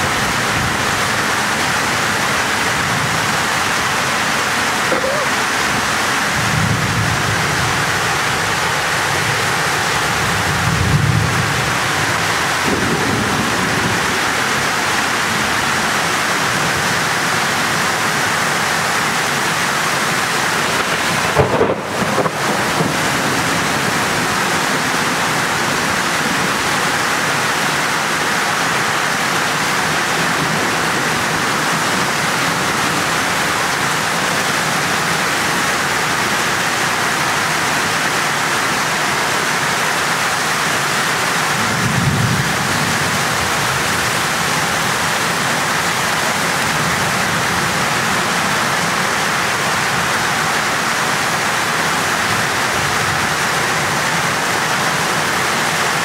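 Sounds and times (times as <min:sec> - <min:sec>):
heavy rain pouring: 0:00.0 - 0:56.0
thunder rumbling: 0:05.0 - 0:15.9, 0:20.5 - 0:27.2, 0:41.5 - 0:46.7.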